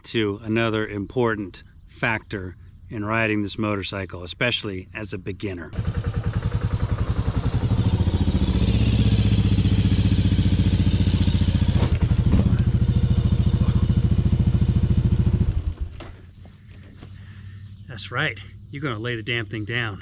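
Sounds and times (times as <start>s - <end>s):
motorcycle engine thumping: 5.8s - 17.1s.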